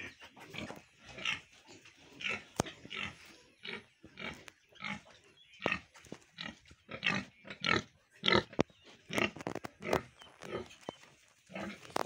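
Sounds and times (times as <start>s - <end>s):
pigs grunting: 5.7s - 10.8s, 11.5s - 12.0s.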